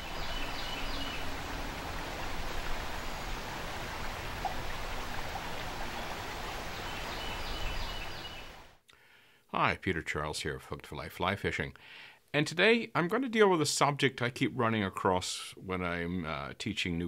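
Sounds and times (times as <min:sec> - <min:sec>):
creek water running over riffle: 0:00.0 - 0:08.7.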